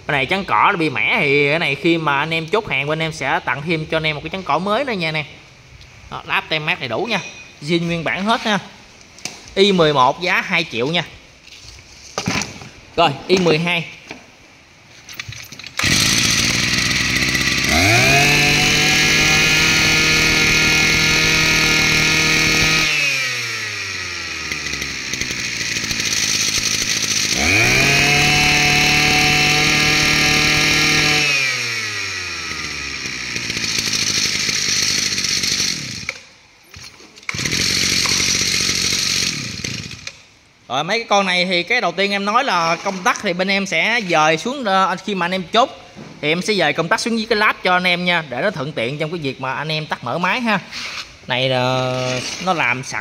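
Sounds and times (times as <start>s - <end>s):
brush cutter engine revving: 15.8s - 36.3s, 37.2s - 40.2s, 51.7s - 53.0s.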